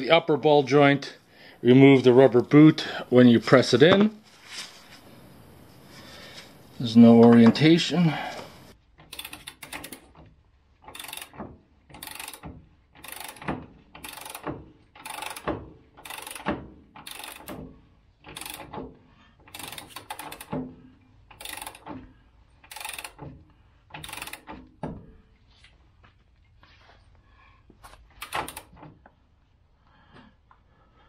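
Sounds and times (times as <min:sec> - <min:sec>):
ratchet wrench clicking: 0:09.1 - 0:10.1, 0:10.8 - 0:17.6, 0:18.3 - 0:18.8, 0:19.5 - 0:20.6, 0:21.3 - 0:21.9, 0:22.6 - 0:23.3, 0:24.0 - 0:24.6, 0:28.2 - 0:28.7.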